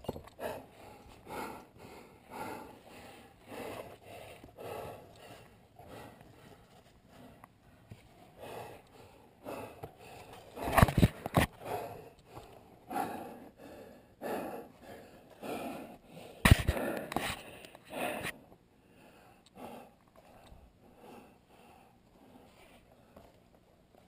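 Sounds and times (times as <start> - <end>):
person breathing: 0.0 - 23.4
bumps against camera: 16.4 - 17.4.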